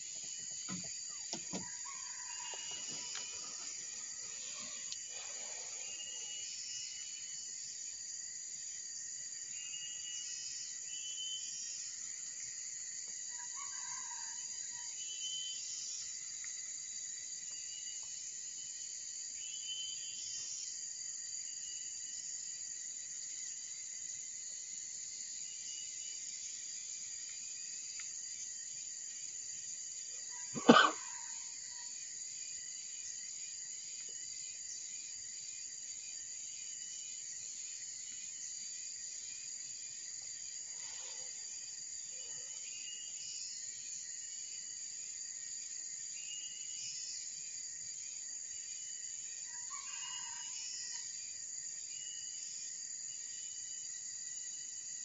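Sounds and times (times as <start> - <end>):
high-pitched insect chorus: 0.0 - 55.0.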